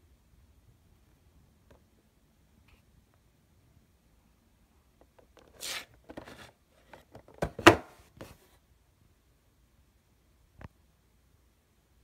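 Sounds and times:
cardboard box scraping on table: 5.5 - 6.6.

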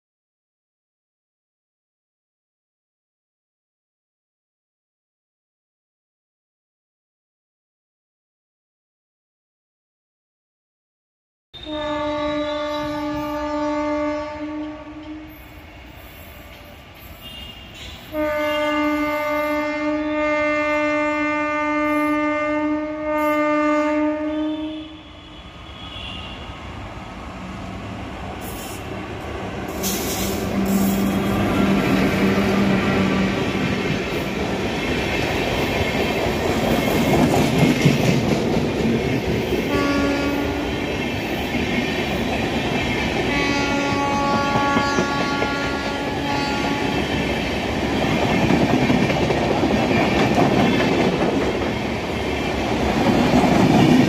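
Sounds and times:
train horn: 11.6 - 15.6, 16.5 - 26.7, 29.8 - 33.7, 39.7 - 40.8, 43.3 - 47.2
train wheels clickety-clack: 33.4 - 54.0.

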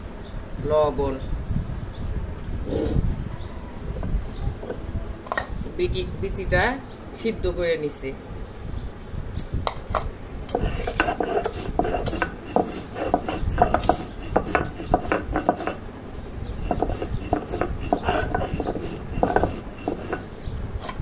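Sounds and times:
stone grinding on stone: 10.5 - 15.8, 16.5 - 20.3.

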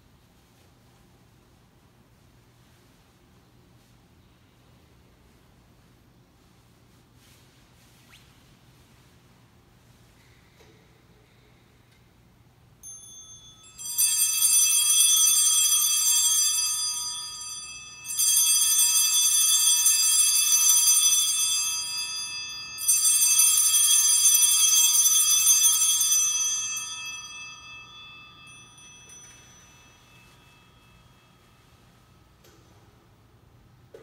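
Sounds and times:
altar bells ringing: 12.8 - 32.4.

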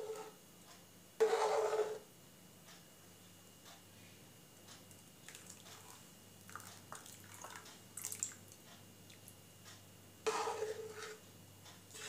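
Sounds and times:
spoon stirring milk in pot: 1.2 - 2.0, 10.3 - 11.2.

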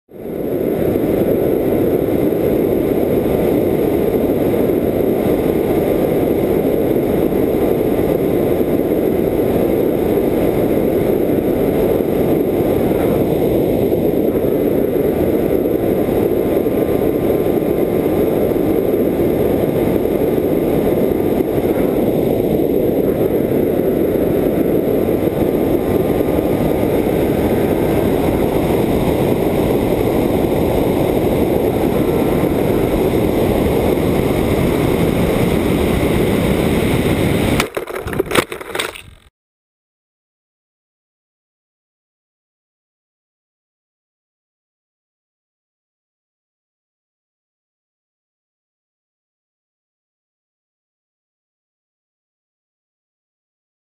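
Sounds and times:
electric motor and propeller whine: 0.1 - 39.3
air rushing over microphone: 0.2 - 39.3.

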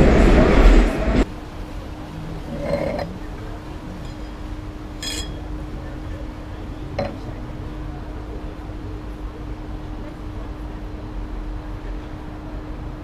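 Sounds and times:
faint steady hum: 0.0 - 13.0
wine glass chink: 5.0 - 5.5.

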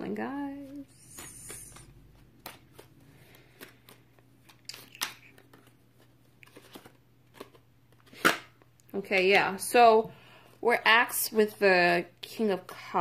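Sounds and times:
cards being shuffled: 0.6 - 8.6.

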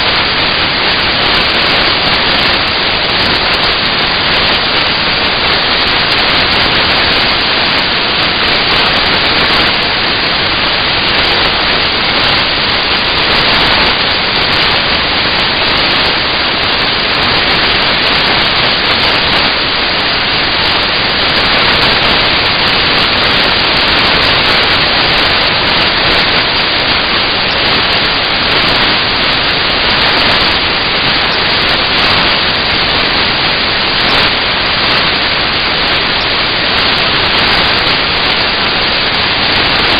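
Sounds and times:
loud steady hiss: 0.0 - 39.9.

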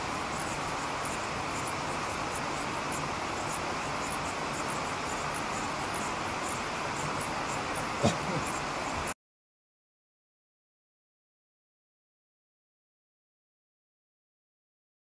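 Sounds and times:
insects chirping: 0.0 - 9.1
steady hiss: 0.0 - 9.2.

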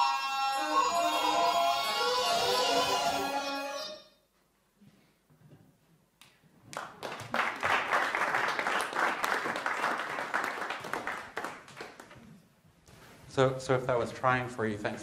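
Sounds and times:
audience applauding: 6.7 - 12.3.

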